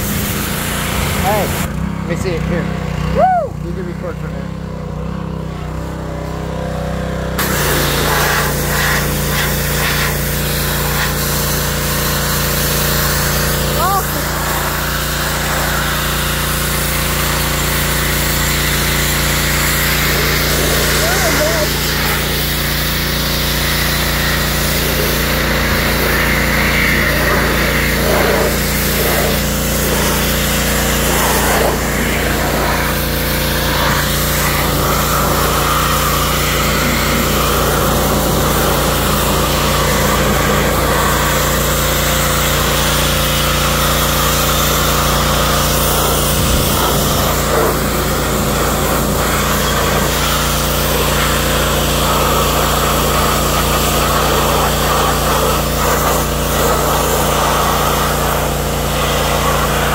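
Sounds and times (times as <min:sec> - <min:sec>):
water spray hissing on car: 0:00.0 - 0:02.4, 0:07.4 - 0:59.9
pressure washer running: 0:00.0 - 0:59.9.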